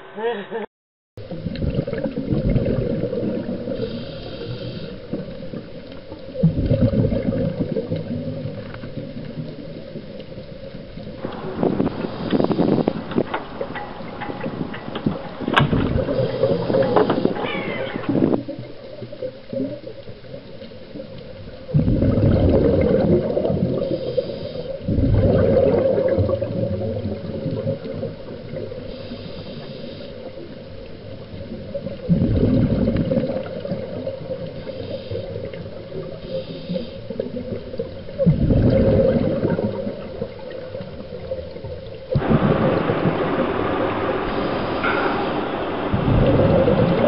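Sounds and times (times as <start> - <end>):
water rushing: 1.2 - 47.0
wind buffeting microphone: 11.2 - 16.4.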